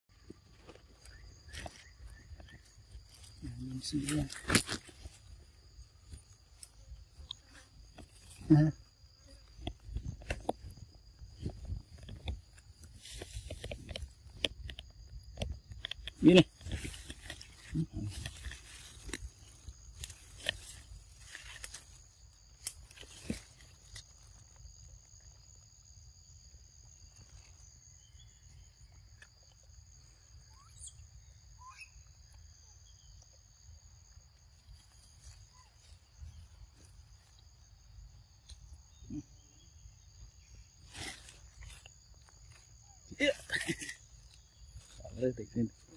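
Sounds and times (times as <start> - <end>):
high-pitched insect drone: 0.2 - 45.9
faint chirps: 27.2 - 33.4.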